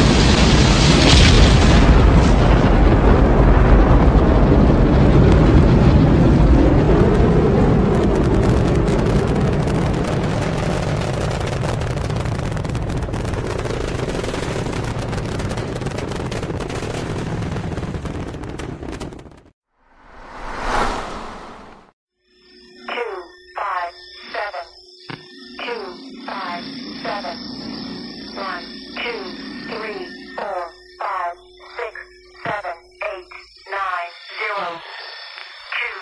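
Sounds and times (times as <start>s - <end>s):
rocket engines roaring: 19.8s - 22.0s.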